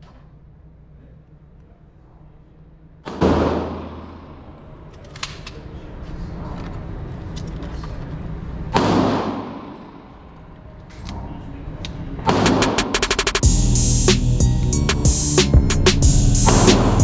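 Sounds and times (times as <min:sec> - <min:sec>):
gunshots echoing indoors: 0:03.0 - 0:05.5, 0:08.7 - 0:10.4, 0:12.2 - 0:13.3.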